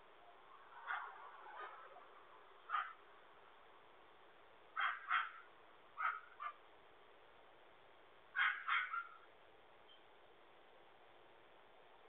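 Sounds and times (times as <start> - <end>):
dog barking: 0.9 - 1.2, 2.7 - 3.0, 4.8 - 5.4, 6.0 - 6.6, 8.4 - 9.2.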